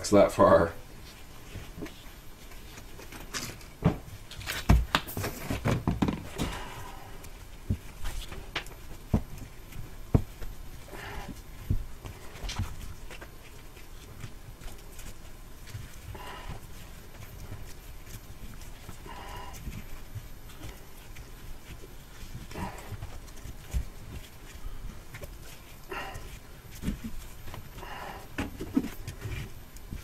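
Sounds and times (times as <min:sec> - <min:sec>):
heat wrap rustling: 0:00.8 - 0:30.0.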